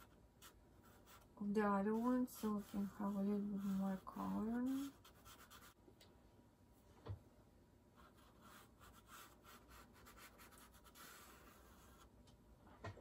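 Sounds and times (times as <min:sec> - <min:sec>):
pastel scratching on paper: 0:00.0 - 0:05.8, 0:08.0 - 0:12.1.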